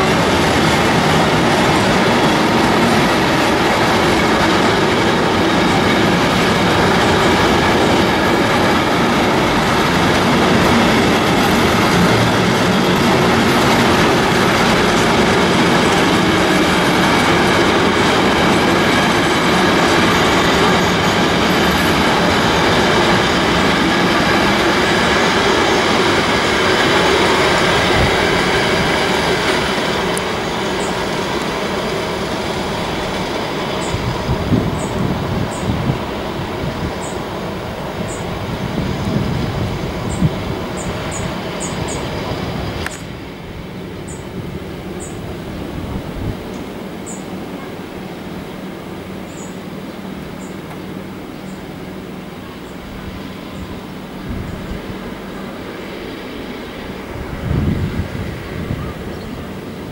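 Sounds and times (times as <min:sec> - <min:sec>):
freight train wheels rolling on rails: 0:00.0 - 0:59.9.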